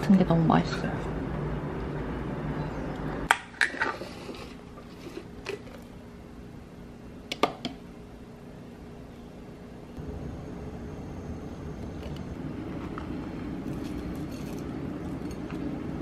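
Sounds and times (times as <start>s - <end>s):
tableware clinking: 13.6s - 15.6s.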